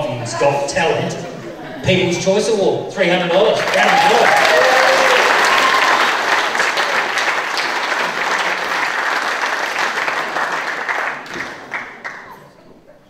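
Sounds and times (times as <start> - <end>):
audience applauding: 3.4 - 12.5.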